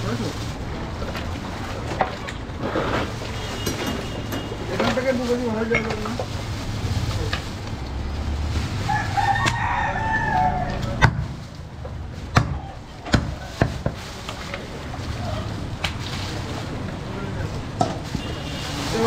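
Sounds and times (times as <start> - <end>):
rooster crowing: 8.8 - 11.0.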